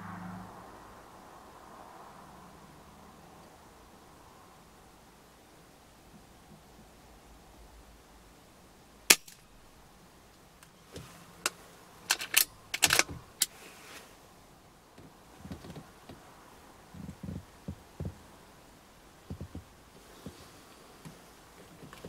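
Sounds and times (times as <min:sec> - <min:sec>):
soft low thumps: 0:17.0 - 0:18.2, 0:19.2 - 0:19.8.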